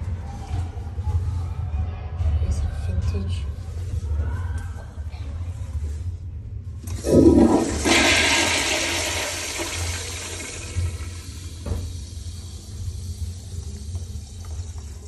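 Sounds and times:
toilet flushing: 0:06.8 - 0:15.0.

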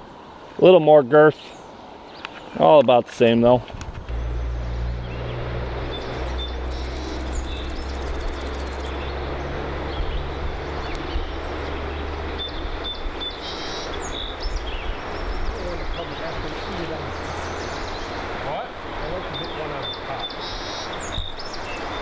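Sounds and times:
flowing river water: 0:00.0 - 0:22.0
low steady rumble: 0:04.0 - 0:13.1
short bird chirps: 0:06.0 - 0:09.1.

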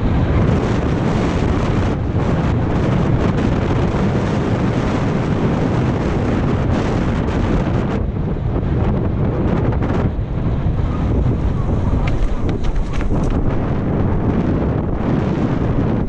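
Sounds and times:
wind buffeting microphone: 0:00.0 - 0:16.0
bike rattling and knocking: 0:11.4 - 0:13.9
tyres rolling on dirt: 0:11.4 - 0:13.9.

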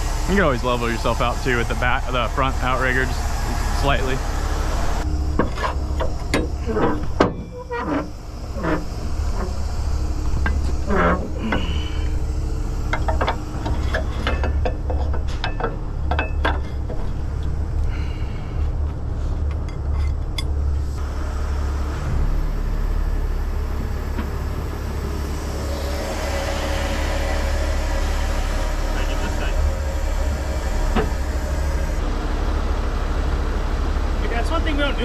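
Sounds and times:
diesel engine running: 0:00.0 - 0:35.0
rushing hiss: 0:24.8 - 0:32.0.

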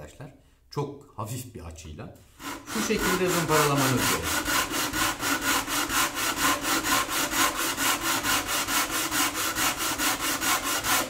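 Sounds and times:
sandpaper rubbing on wood: 0:02.4 - 0:11.0.

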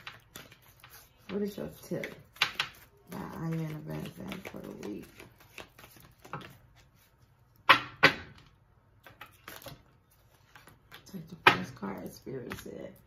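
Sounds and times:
cards shuffling: 0:00.0 - 0:07.3.

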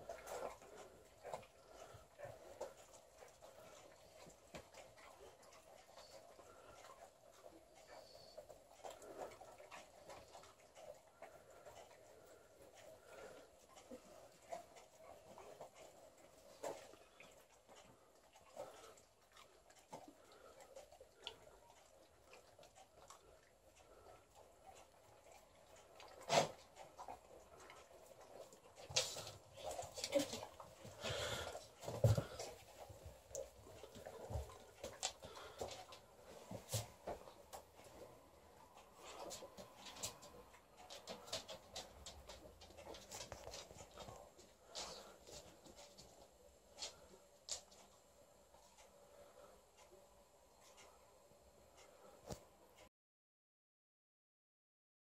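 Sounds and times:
dog licking and chewing: 0:00.0 - 0:38.0.

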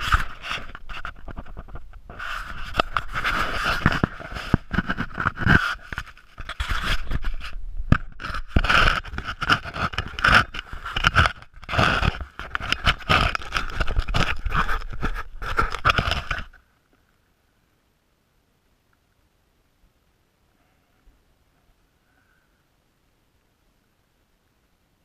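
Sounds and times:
hand rubbing camera housing: 0:00.0 - 0:16.6.

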